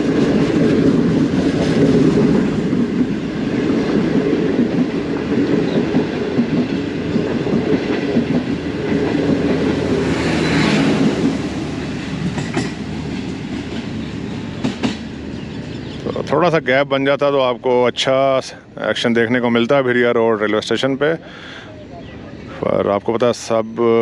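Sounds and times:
train wheels clicking over rail joints: 0.0s - 16.0s
diesel locomotive pulling away: 0.0s - 19.0s.

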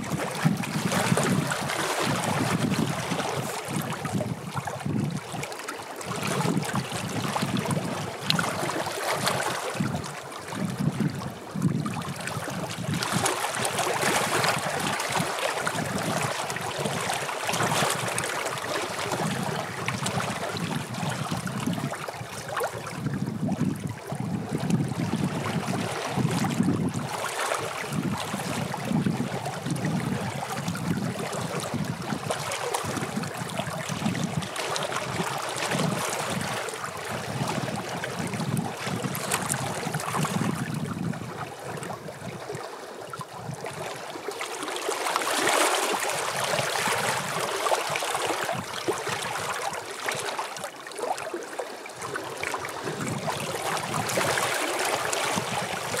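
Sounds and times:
waves lapping against stones: 0.0s - 56.0s.

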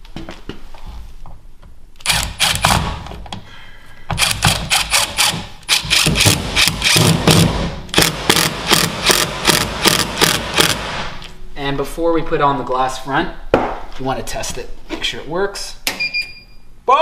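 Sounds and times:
impact driver hammering: 2.0s - 3.0s, 4.1s - 11.1s.

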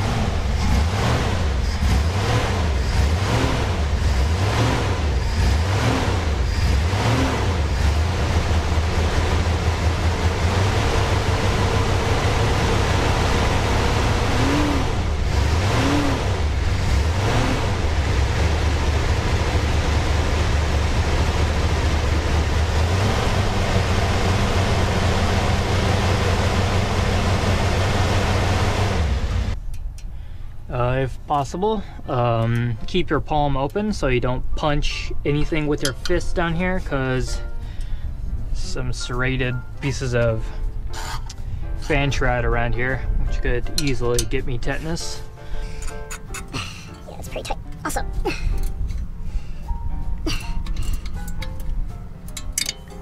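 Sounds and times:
car engine revving: 0.0s - 29.6s.

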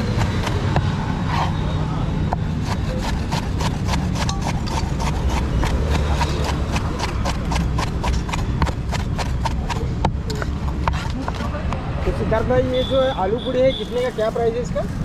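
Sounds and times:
knife chopping on wooden board: 2.3s - 11.4s.

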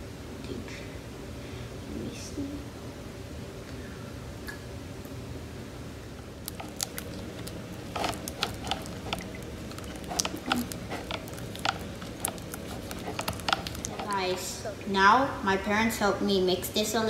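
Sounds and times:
spatula stirring sticky slime: 6.4s - 14.5s.

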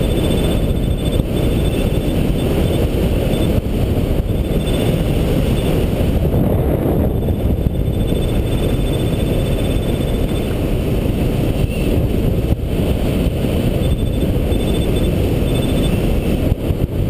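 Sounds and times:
faint rapid high beeping: 0.0s - 5.9s, 7.2s - 10.6s, 13.7s - 16.1s
wind noise on microphone: 0.0s - 17.0s.

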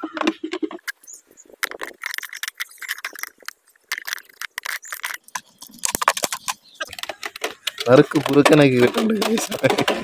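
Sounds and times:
plastic crackling: 0.0s - 10.0s
knife cutting plastic jar: 3.9s - 10.0s.

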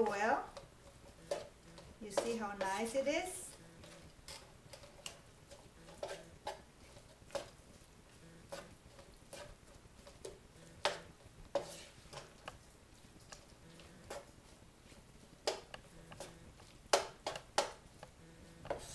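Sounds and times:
spatula scraping a wok: 5.8s - 7.5s, 10.8s - 12.3s.

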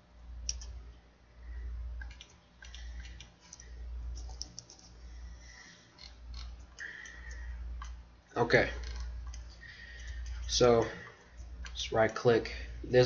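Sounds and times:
keyboard keystrokes: 2.0s - 4.9s
mouse clicks: 2.0s - 4.9s.

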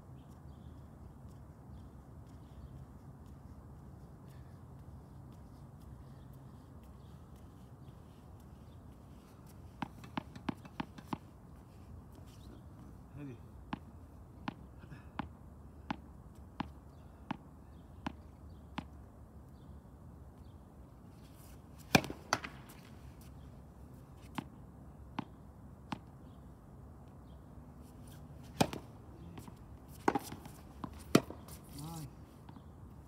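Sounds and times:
tennis balls bouncing: 9.4s - 11.4s, 13.6s - 19.0s, 21.8s - 23.4s, 24.2s - 26.4s, 28.1s - 31.8s
racket hitting ball: 9.8s - 11.3s, 21.8s - 22.9s, 28.4s - 31.8s.

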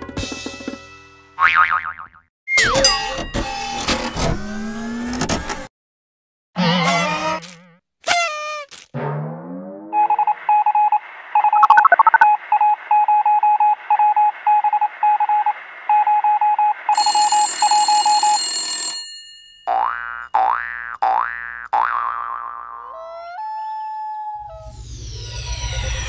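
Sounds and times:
electronic beep tones: 10.0s - 13.6s
high steady tones: 11.6s - 12.3s.

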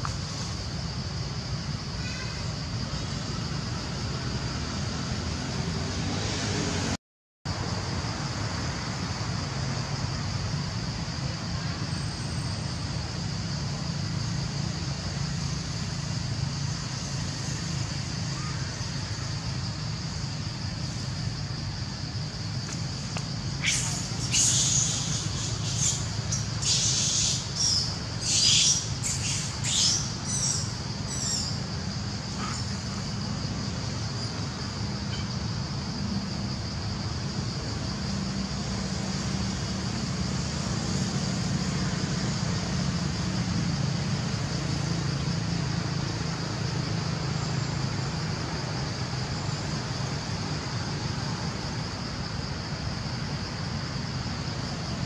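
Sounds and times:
high insect drone: 0.0s - 55.0s
short high chirping calls: 23.6s - 31.5s.

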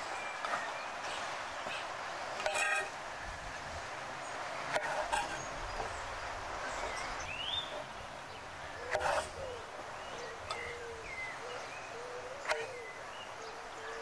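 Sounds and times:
outdoor background hiss: 0.0s - 14.0s
bird chirping: 6.7s - 14.0s.

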